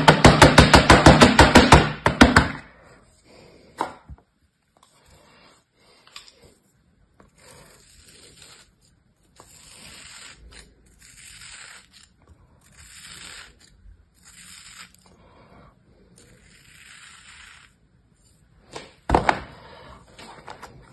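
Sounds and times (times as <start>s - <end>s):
knife slicing kinetic sand: 7.3s - 15.0s, 16.2s - 17.8s.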